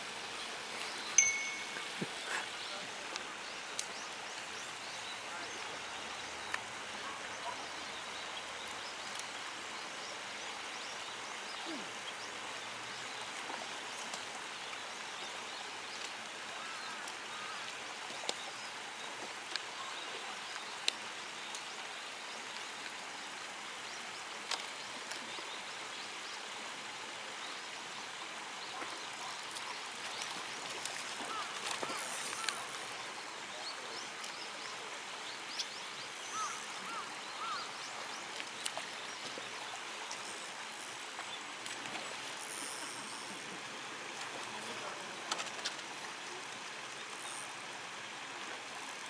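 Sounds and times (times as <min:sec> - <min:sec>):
flowing water rushing: 0:00.0 - 0:49.0.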